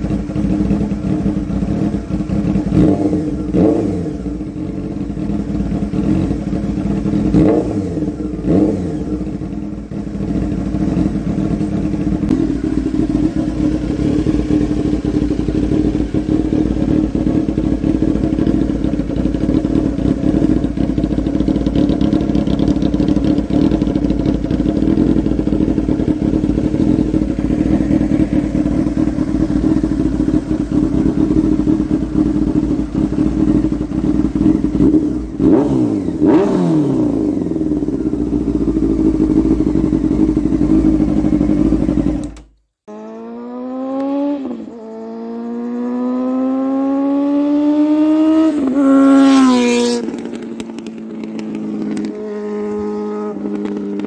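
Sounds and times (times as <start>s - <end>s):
motorcycle engine idling: 0.0s - 43.4s, 48.5s - 54.0s.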